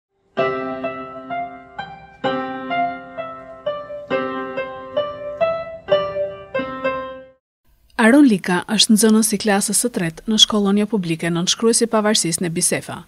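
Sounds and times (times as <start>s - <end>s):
electronic keyboard piano melody: 0.2s - 7.4s.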